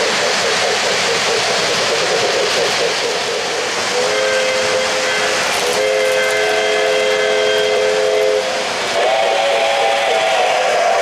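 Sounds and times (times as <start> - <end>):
model train rolling on track: 0.0 - 11.0
model train whistle: 4.0 - 11.0.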